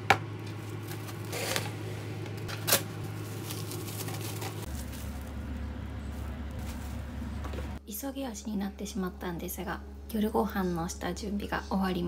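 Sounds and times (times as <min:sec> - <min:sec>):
plastic cling wrap crinkling: 0:02.4 - 0:07.2.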